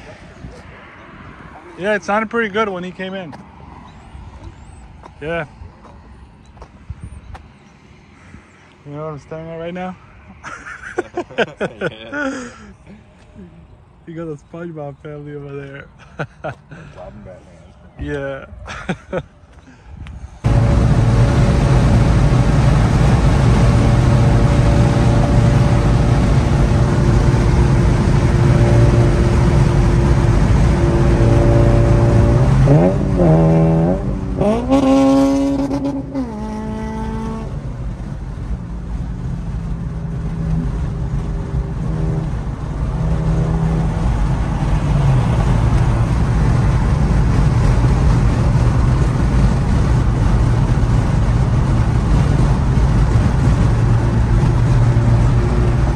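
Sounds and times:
road noise: 0.0s - 55.9s
car engine droning at highway speed: 20.1s - 55.9s
engine revving up: 20.4s - 37.6s.

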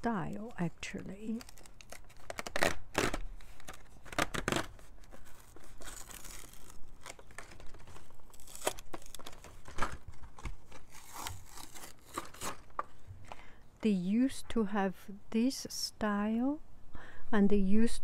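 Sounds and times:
plastic crinkling: 0.2s - 13.4s
cardboard ripping: 1.3s - 12.8s.

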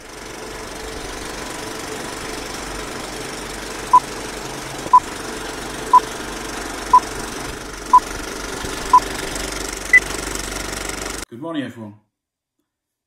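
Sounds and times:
film projector rattling: 0.0s - 11.2s.

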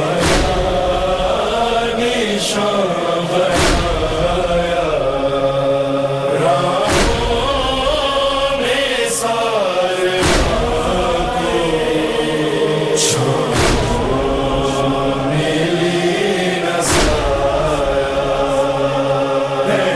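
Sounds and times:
men chanting a lament: 0.0s - 19.9s
low thump: 0.2s - 1.3s, 3.6s - 4.6s, 6.9s - 8.0s, 10.2s - 11.7s, 13.5s - 14.6s, 16.8s - 17.8s.

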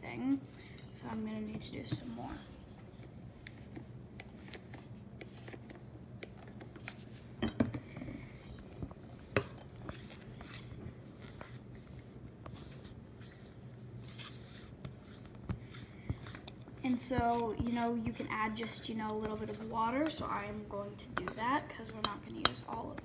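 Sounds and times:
spatula scraping a metal bowl: 9.1s - 22.8s.

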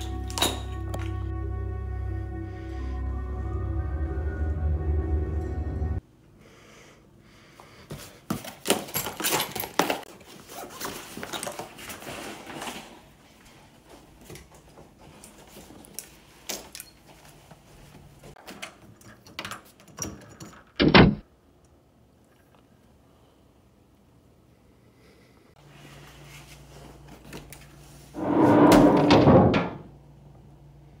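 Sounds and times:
clothing rustle: 7.9s - 18.4s.

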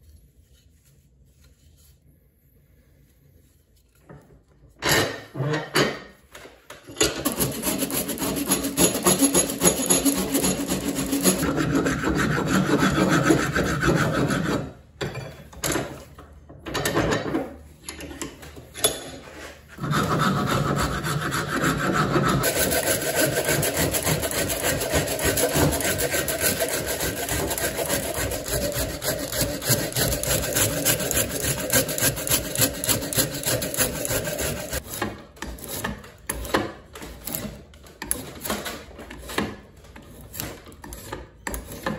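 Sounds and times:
wood rasp scraping wood: 7.0s - 14.8s, 19.3s - 41.9s.

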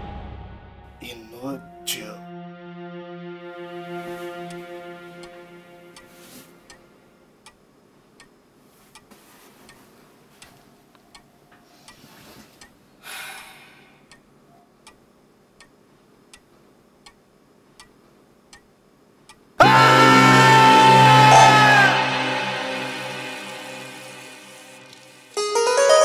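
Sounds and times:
clock ticking: 7.4s - 9.1s, 14.1s - 19.6s.

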